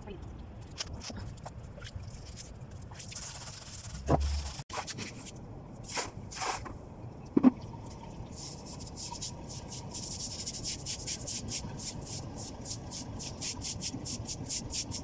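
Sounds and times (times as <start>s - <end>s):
broom sweeping: 3.1s - 6.7s.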